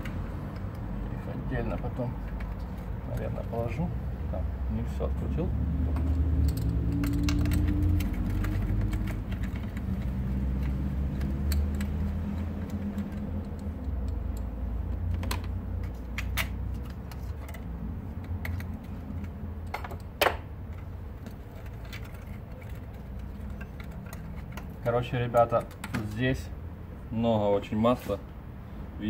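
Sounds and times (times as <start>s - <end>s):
small metallic clicks and clinks: 6.0s - 26.2s.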